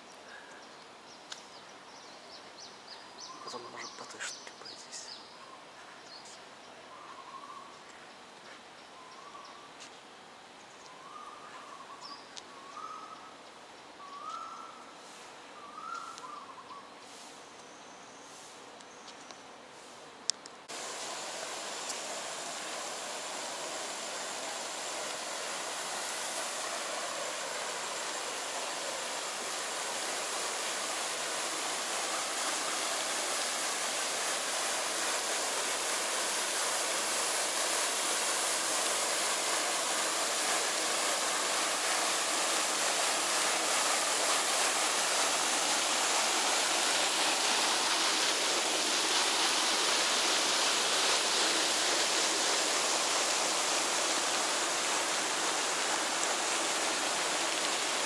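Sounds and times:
fountain water splashing: 0:20.7 - 0:58.0.

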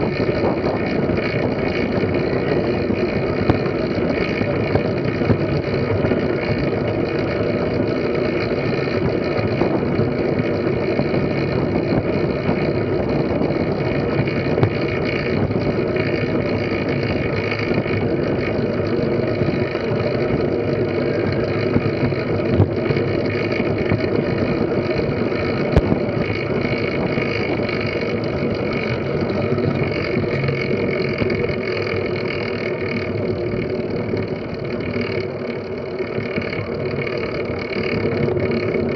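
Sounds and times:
tyres rolling on wooden boards: 0:00.0 - 0:38.9
wind on microphone: 0:00.0 - 0:38.9.

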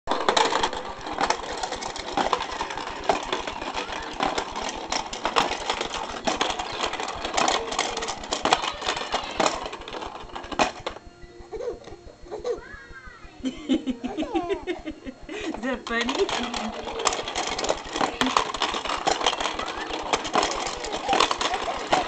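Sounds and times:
plastic toy rattling on track: 0:00.1 - 0:11.0, 0:15.4 - 0:22.0.

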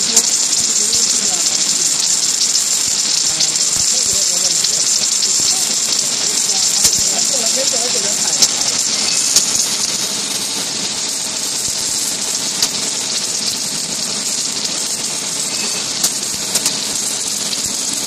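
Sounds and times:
welding arc hissing: 0:00.0 - 0:18.0
welding crackles: 0:00.0 - 0:18.0.

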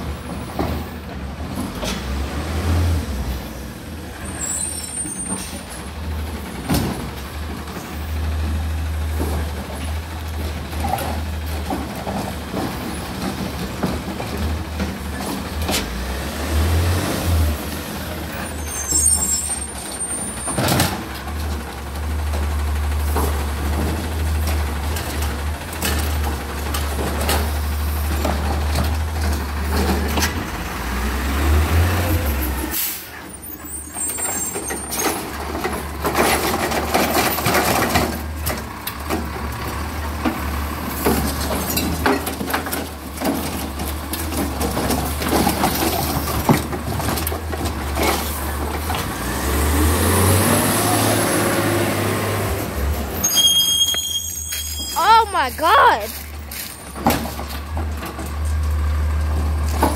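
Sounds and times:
truck engine rumbling: 0:00.0 - 0:59.9
air brakes hissing: 0:32.6 - 0:34.4.

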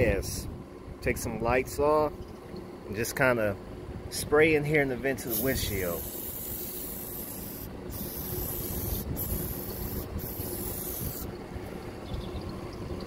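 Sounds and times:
aerosol can spraying: 0:05.3 - 0:11.3.

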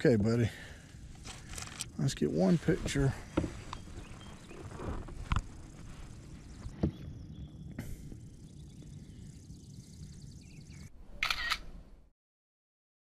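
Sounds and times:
camera shutter clicking: 0:11.2 - 0:11.7.

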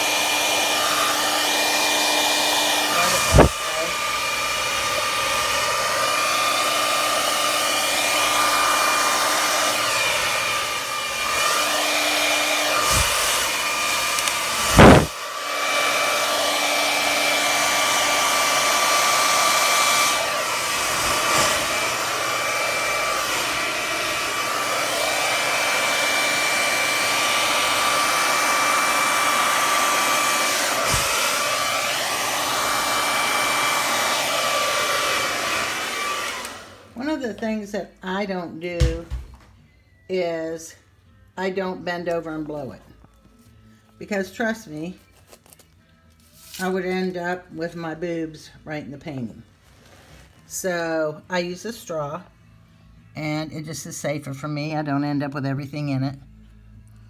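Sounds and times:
hair dryer running: 0:00.0 - 0:39.5, 0:46.4 - 0:49.3.

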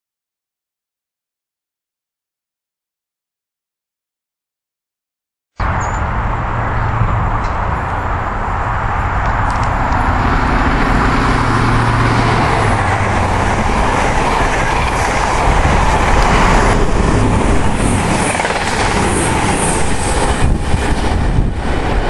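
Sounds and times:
diesel engine hum: 0:05.6 - 0:20.6
train wheels rushing on rail: 0:05.7 - 0:22.0.

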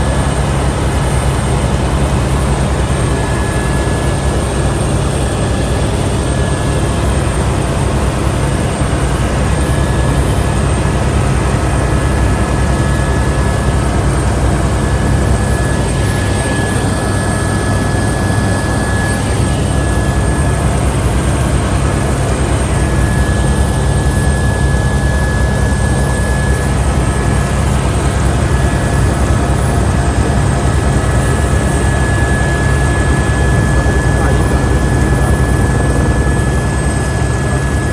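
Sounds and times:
helicopter rotor and engine drone: 0:00.0 - 0:37.9
high-pitched whine: 0:08.3 - 0:37.9.

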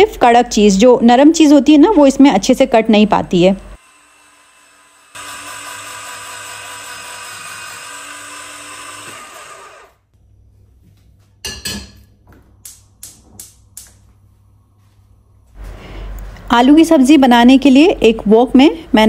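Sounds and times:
electric vegetable slicer running: 0:03.8 - 0:10.0.

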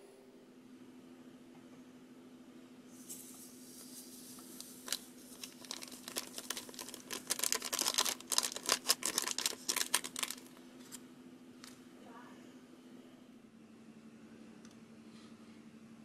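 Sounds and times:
foil packet crinkling: 0:03.1 - 0:11.0.

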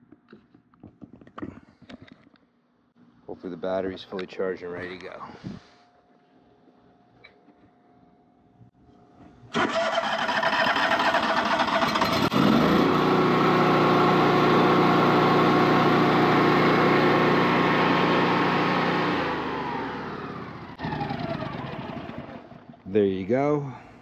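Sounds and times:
generator engine cranking and running: 0:09.5 - 0:22.8.

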